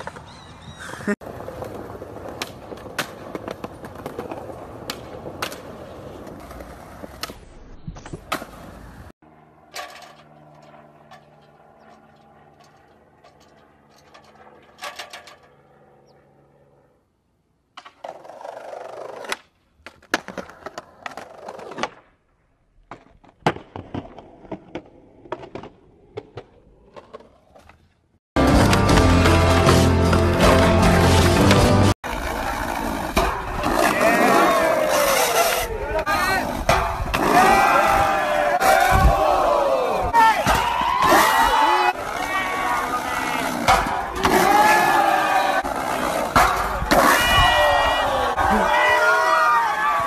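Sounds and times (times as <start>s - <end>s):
skateboard wheels rolling on concrete: 0.0s - 9.1s, 17.0s - 50.0s
skateboard clacks: 17.8s - 22.1s.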